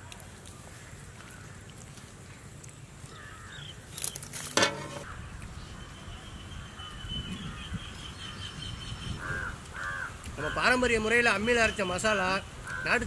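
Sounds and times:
crow cawing: 3.1s - 3.6s, 9.2s - 10.8s, 12.6s - 13.0s.

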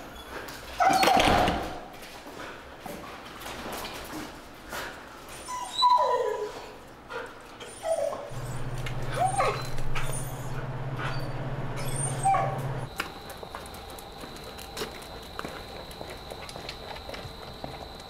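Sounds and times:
dog whining and whimpering: 0.0s - 1.6s, 5.3s - 6.8s, 7.6s - 12.9s
elevator hum: 8.3s - 18.0s.

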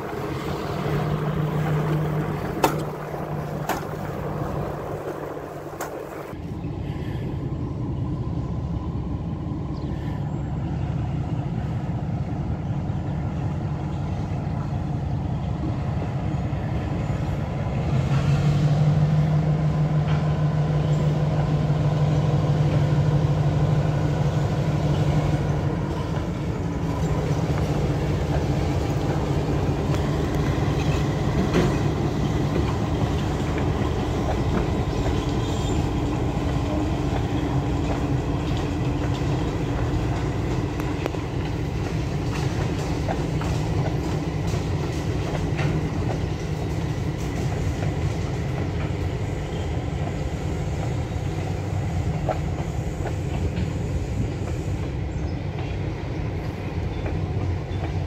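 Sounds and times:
train wheels clicking over rail joints: 0.0s - 6.4s, 24.2s - 58.0s
train cars rolling rumble: 0.0s - 58.0s.

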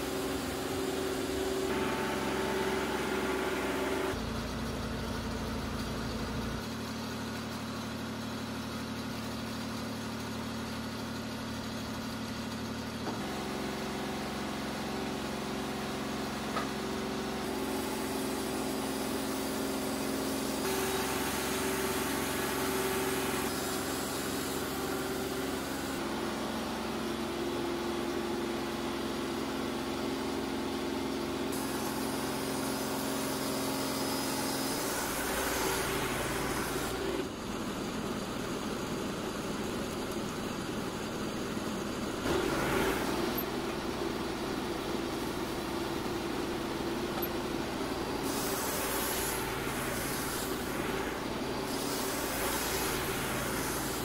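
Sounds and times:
sawmill engine running: 0.0s - 54.0s.

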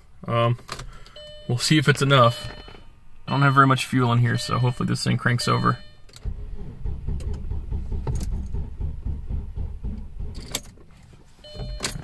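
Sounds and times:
starter motor cranking engine: 6.2s - 10.6s.

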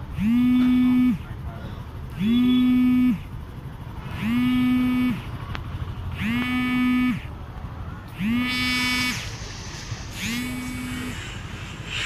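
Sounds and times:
hooting tone: 6.2s - 7.3s, 8.2s - 12.0s.

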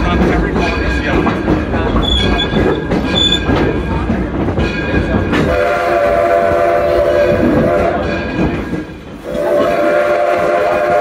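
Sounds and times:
train wheels rumbling on rail: 0.0s - 11.0s
wheel squeals: 2.0s - 3.7s
steam whistle: 5.5s - 8.1s, 9.2s - 11.0s.

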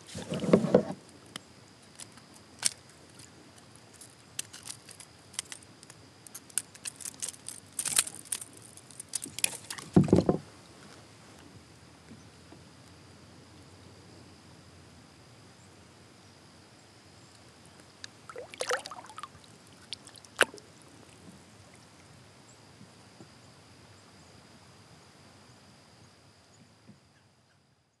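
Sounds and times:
quiet water around boat: 0.0s - 28.0s
thump against kayak: 9.9s - 10.4s.

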